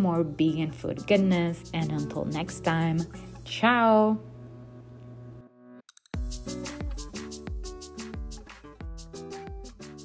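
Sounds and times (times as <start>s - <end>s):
music with steady beat: 5.9s - 10.0s.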